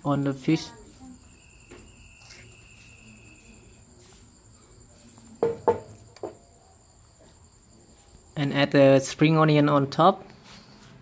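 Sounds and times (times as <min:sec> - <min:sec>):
lower insect trill: 0:00.0 - 0:09.6
crickets chirping: 0:00.0 - 0:11.0.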